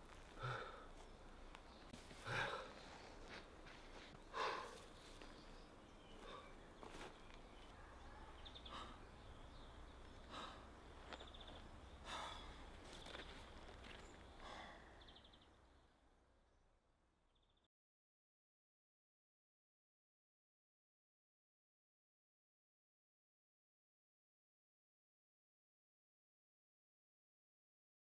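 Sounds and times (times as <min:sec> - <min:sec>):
man breathing and sighing: 0:00.1 - 0:01.1, 0:01.9 - 0:05.4, 0:06.0 - 0:07.1, 0:08.5 - 0:15.3.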